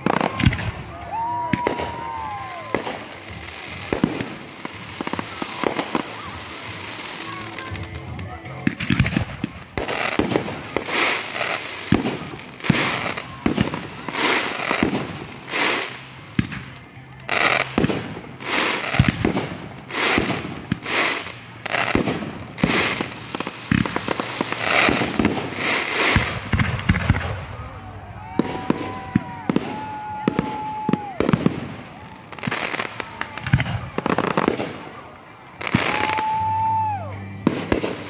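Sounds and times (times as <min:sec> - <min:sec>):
fireworks launches and bangs: 0:00.0 - 0:27.7, 0:28.4 - 0:36.6, 0:37.4 - 0:38.0
fireworks crackling and hissing: 0:00.0 - 0:38.0.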